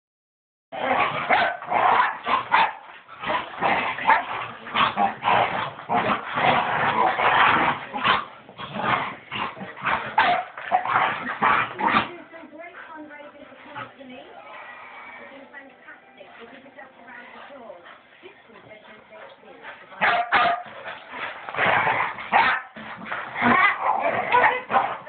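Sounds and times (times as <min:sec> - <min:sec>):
dogs barking and yipping: 0:00.8 - 0:12.2, 0:19.0 - 0:25.0.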